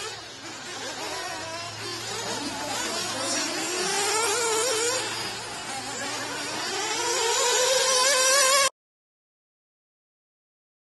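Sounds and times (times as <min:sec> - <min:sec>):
small nitro engines buzzing: 0:00.0 - 0:08.7.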